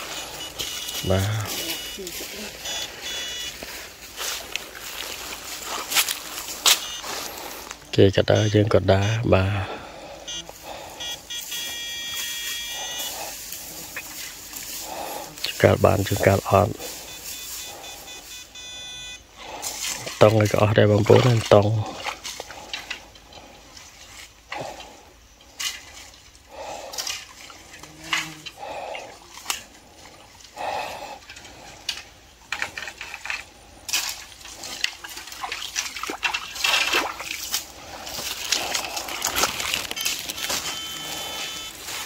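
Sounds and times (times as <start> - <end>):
footsteps splashing through water: 0.0 - 7.8, 21.2 - 23.0, 25.5 - 28.0, 33.9 - 42.0.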